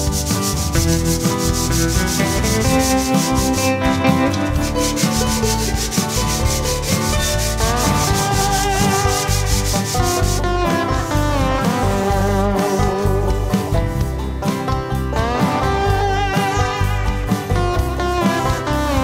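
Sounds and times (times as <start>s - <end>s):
steel guitar strummed fast: 0.0s - 11.8s.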